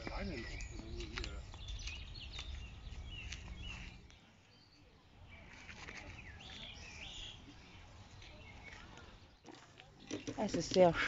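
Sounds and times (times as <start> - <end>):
small birds chirping: 0.0 - 11.0.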